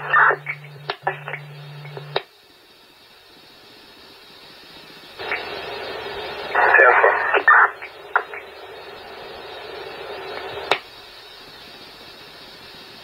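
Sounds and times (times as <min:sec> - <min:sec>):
radio clicks: 0:00.0 - 0:02.3, 0:05.2 - 0:10.9
radio static: 0:00.0 - 0:02.3, 0:05.1 - 0:11.1
faint radio hiss: 0:00.0 - 0:13.0
radio channel hum: 0:00.0 - 0:13.0.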